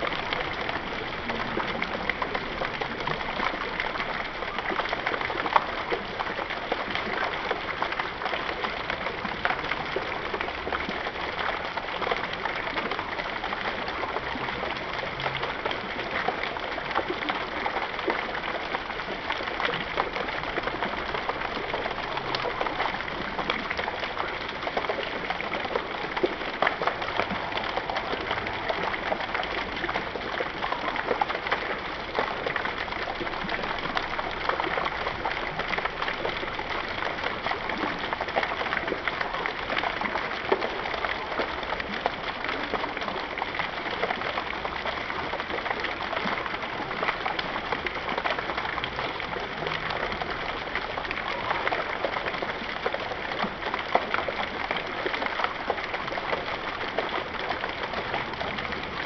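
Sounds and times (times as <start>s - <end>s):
fountain water splashing: 0.0s - 59.0s.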